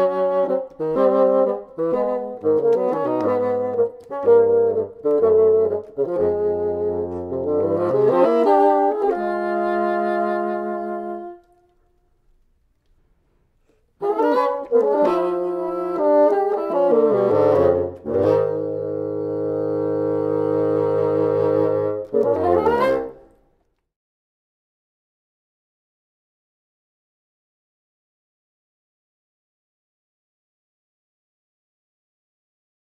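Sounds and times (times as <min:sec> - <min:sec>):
bassoons playing a duet: 0:00.0 - 0:11.8, 0:14.0 - 0:23.4.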